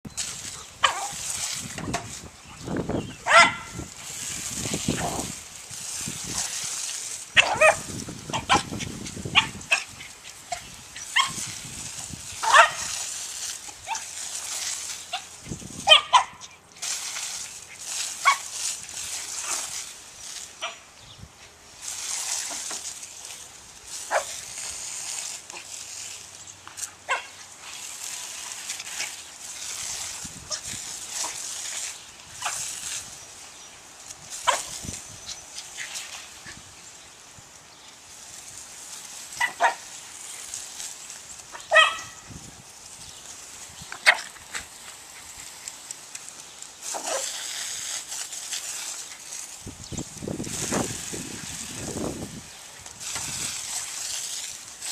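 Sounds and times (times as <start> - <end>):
hose spray hissing: 0.1 - 54.9
dog barking sharply: 3.3 - 3.8, 41.7 - 42.2.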